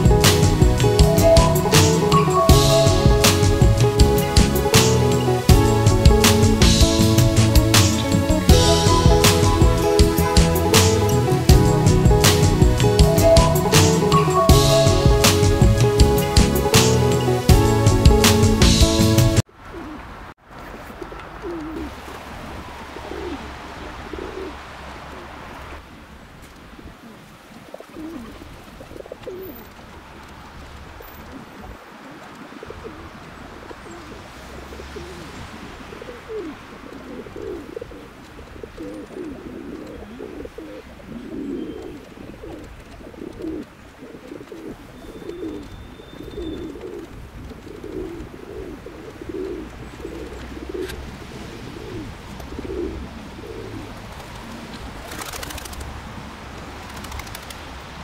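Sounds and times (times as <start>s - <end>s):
pigeons cooing: 0.0s - 20.1s, 20.9s - 22.0s, 22.8s - 25.3s, 26.9s - 30.3s, 31.0s - 55.8s
steady background hiss: 0.0s - 58.0s.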